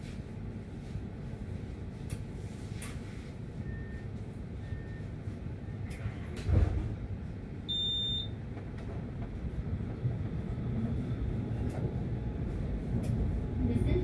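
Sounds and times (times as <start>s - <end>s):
tram rumbling: 4.1s - 7.7s, 8.3s - 14.0s.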